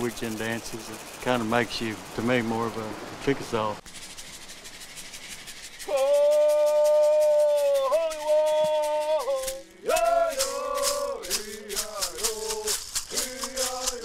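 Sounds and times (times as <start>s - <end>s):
hand rattle shaking: 0.0s - 3.0s, 3.8s - 14.0s
leg shakers rattling: 0.0s - 14.0s
men singing call and answer: 5.8s - 14.0s.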